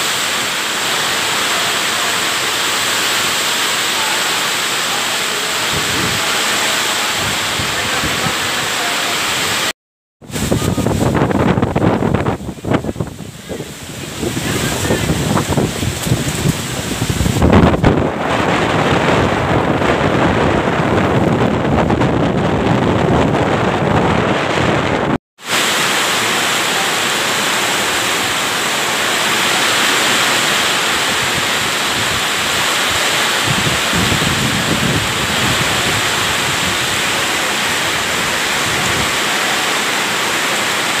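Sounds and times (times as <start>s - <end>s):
torrential rain hissing: 0.0s - 21.6s, 25.4s - 41.0s
surf pounding: 0.0s - 41.0s
wind lashing trees: 0.0s - 41.0s
wind buffeting microphone: 5.6s - 8.6s, 10.2s - 25.2s, 30.0s - 39.4s.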